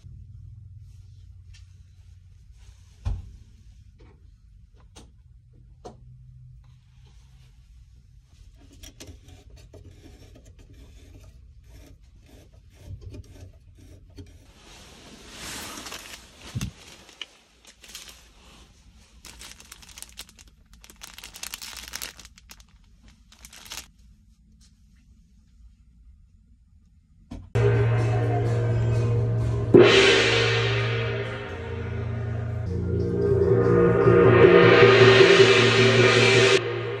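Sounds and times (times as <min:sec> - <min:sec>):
plastic rustling: 0:14.8 - 0:23.9
low steady cabin drone: 0:27.5 - 0:37.0.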